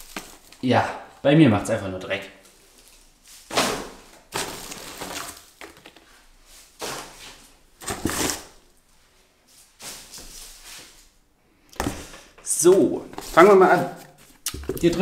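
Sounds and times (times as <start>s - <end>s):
cardboard packing rustling: 0.0s - 0.7s, 2.5s - 8.6s, 11.8s - 15.0s.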